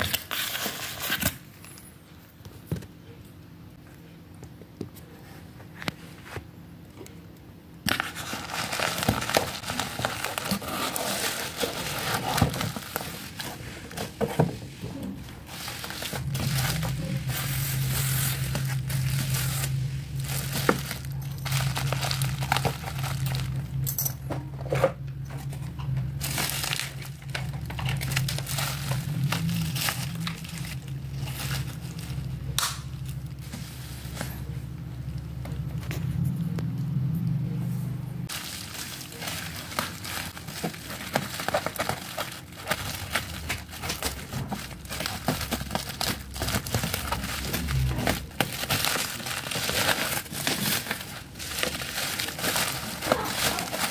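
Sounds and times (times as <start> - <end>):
bubble wrap crinkling: 0.0 - 1.5, 7.9 - 23.9, 25.4 - 34.6, 38.2 - 53.9
low steady hum: 0.0 - 53.9.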